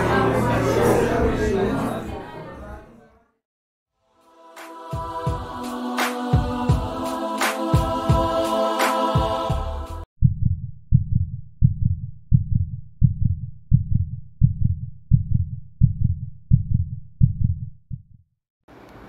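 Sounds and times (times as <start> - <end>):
intro music: 4.2 - 10.0
heartbeat thumps: 10.2 - 18.2.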